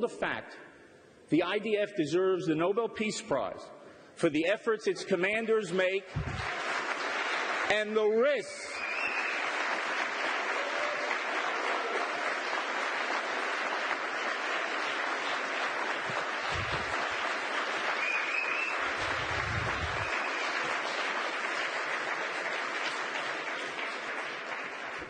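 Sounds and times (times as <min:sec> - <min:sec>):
person giving a speech: 0:00.0 - 0:06.5, 0:07.7 - 0:08.8
audience applauding: 0:06.1 - 0:25.0.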